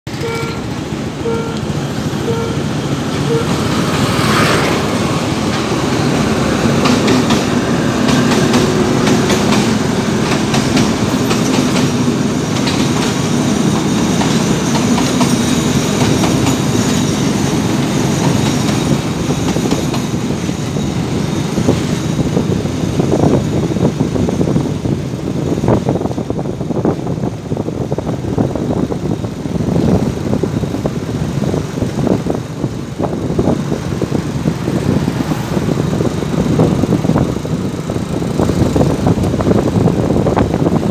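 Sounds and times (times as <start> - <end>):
level crossing warning signal: 0.1 - 4.0
train wheels clicking over rail joints: 0.1 - 27.1
diesel locomotive engine drone: 0.1 - 40.9.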